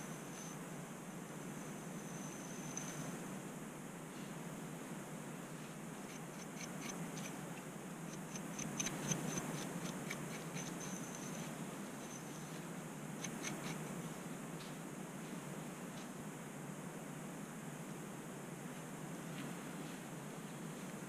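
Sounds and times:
steady low hum: 0.0s - 21.0s
scratching scalp through hair: 6.1s - 7.4s, 8.1s - 12.6s, 13.2s - 13.9s.

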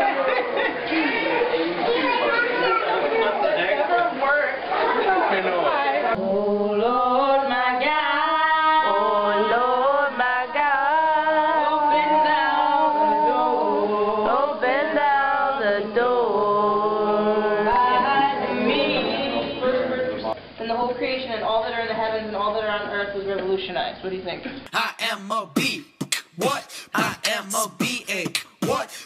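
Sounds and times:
person singing long sliding notes: 24.7s - 29.0s.

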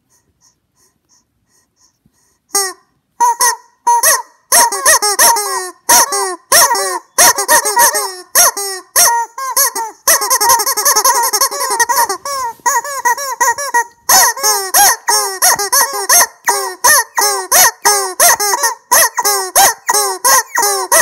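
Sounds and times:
rubber chicken toy squawking: 2.5s - 21.0s.

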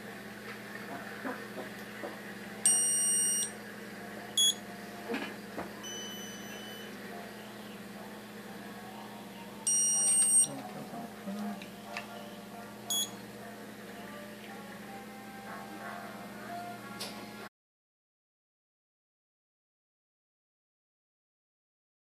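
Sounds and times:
steady low hum: 0.0s - 17.5s
curing light beeping: 2.6s - 3.6s, 4.4s - 4.6s, 5.8s - 7.0s, 9.6s - 10.5s, 12.9s - 13.2s.

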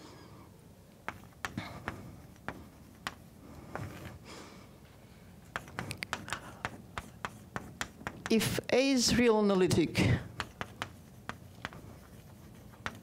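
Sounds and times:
chalk tapping on blackboard: 1.0s - 4.0s, 5.5s - 8.4s, 10.3s - 13.0s.

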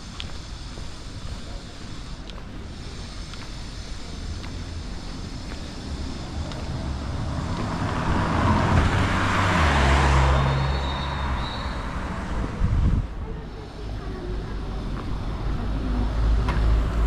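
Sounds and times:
vehicle passing by: 4.7s - 17.0s.

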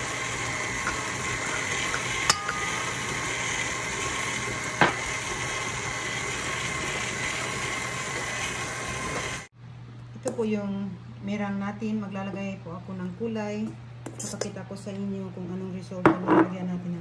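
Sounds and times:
electric stand mixer whisking: 0.0s - 9.5s.

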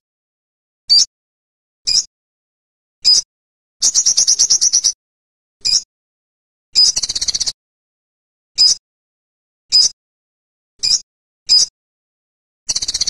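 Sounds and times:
bird rapid trills: 3.8s - 5.0s
sunbird sharp calls: 3.8s - 5.0s.

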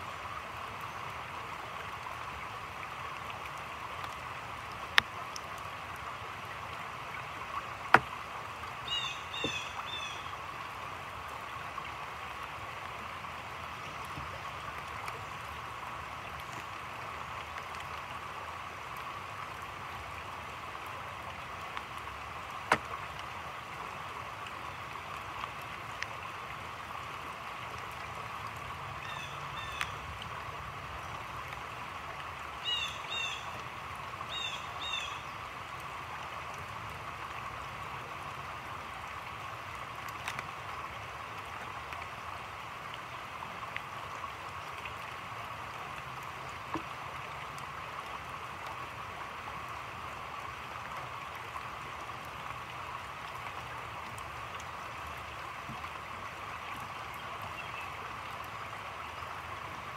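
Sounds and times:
rain falling on water and foliage: 0.0s - 59.9s
sharp drip clicks: 22.6s - 23.3s.

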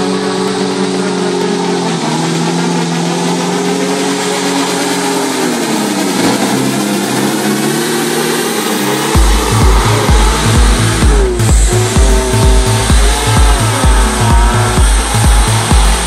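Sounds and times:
hovercraft engine and fan running: 0.0s - 16.0s
regular low thumping: 9.1s - 16.0s.

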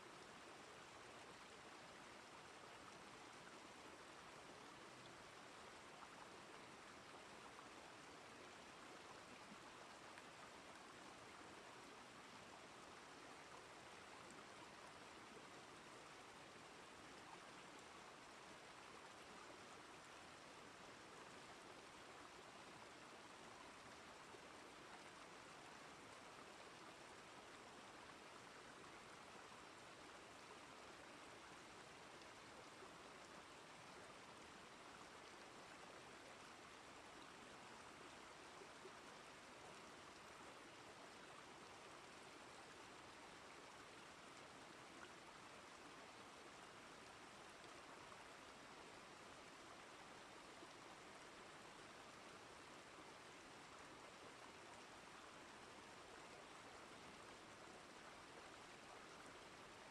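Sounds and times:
faint flowing stream water: 0.0s - 59.9s.

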